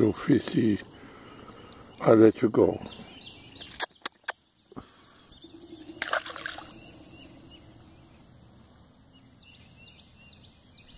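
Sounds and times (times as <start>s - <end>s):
faint outdoor background: 0.0s - 10.9s
fish splashing into water: 6.0s - 6.9s.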